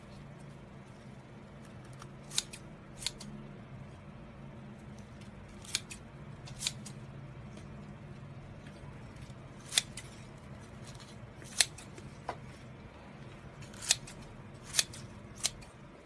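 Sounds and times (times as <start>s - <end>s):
scissors snipping: 1.6s - 3.3s, 5.2s - 7.0s, 9.1s - 10.2s, 10.8s - 12.1s, 13.6s - 15.7s.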